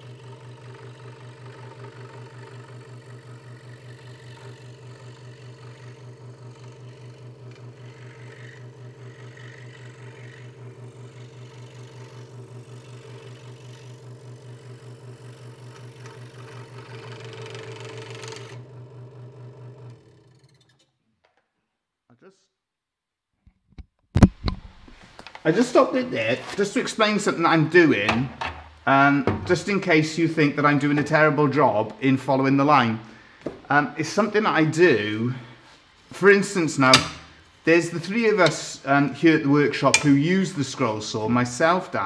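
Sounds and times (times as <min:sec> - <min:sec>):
saw switching off: 0:00.0 - 0:20.8, 0:34.0 - 0:42.0
scroll saw cutting wood: 0:00.0 - 0:21.0, 0:34.0 - 0:42.0.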